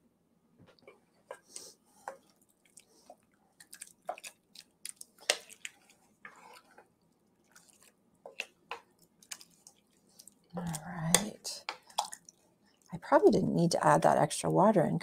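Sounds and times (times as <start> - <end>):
wet squelching of stirred chili: 1.2 - 12.9.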